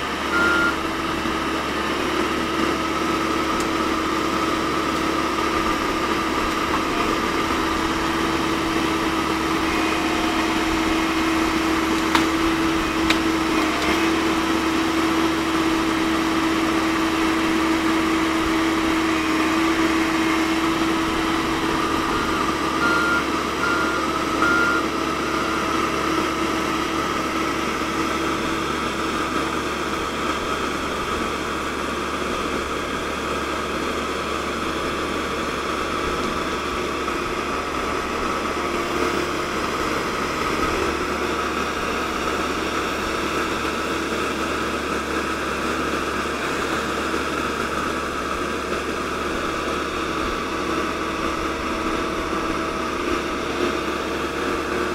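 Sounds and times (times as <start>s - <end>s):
constant whine: 0.0s - 32.6s
excavator diesel engine running: 0.0s - 54.9s
short high beeps: 0.3s - 0.8s, 22.3s - 24.9s.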